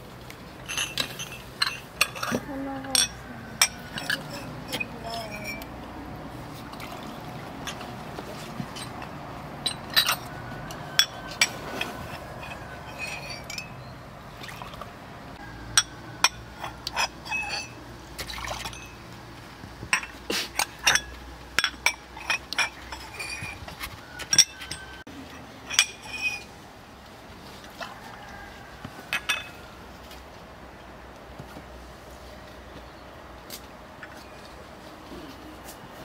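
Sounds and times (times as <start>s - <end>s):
tableware clinking: 0.6s - 5.7s, 8.8s - 13.9s, 15.7s - 17.8s, 18.4s - 19.0s, 19.9s - 25.0s, 25.6s - 26.5s, 29.1s - 29.6s.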